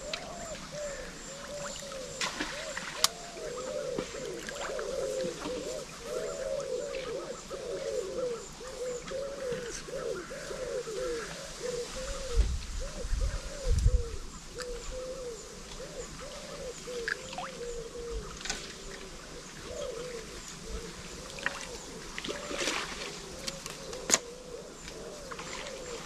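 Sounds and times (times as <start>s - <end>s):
hooting animal calls: 0.0s - 13.5s.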